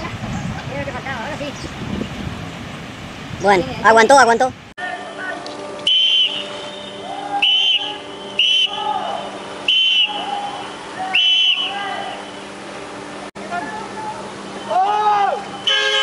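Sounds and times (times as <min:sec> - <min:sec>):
shrill whistle blasts: 0:05.8 - 0:11.8.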